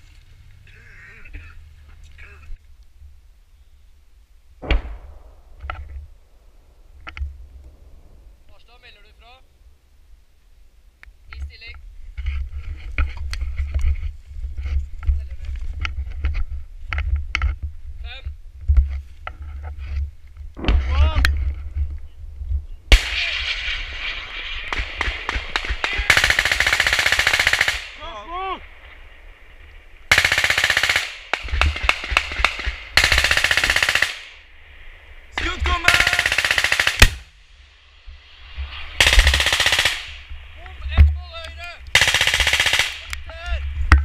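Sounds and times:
automatic gunfire bursts: 0:24.7 - 0:28.0, 0:30.1 - 0:34.3, 0:35.8 - 0:37.2, 0:39.0 - 0:40.2, 0:42.0 - 0:43.1
people shouting: 0:25.8 - 0:26.4.

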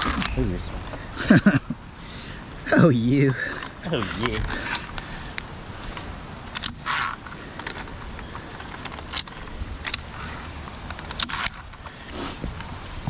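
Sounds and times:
low rumble: 0:00.0 - 0:03.1
metal climbing gear clinking: 0:02.7 - 0:12.1.

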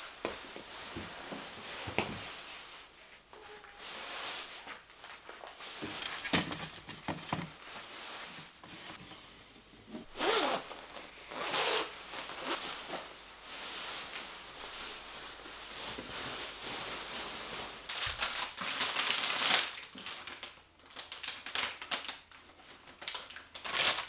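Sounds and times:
clothes rustling: 0:00.0 - 0:19.2
zipper being pulled: 0:10.1 - 0:12.8.

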